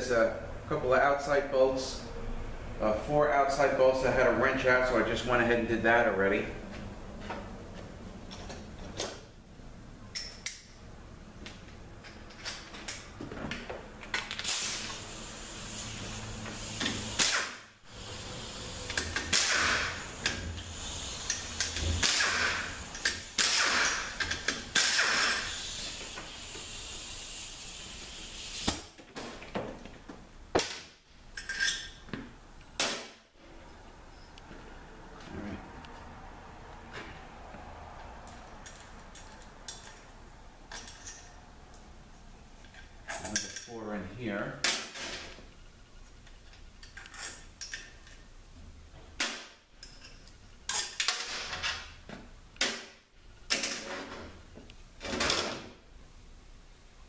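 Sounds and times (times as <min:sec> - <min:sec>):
power tool hissing: 0:14.5 - 0:28.7.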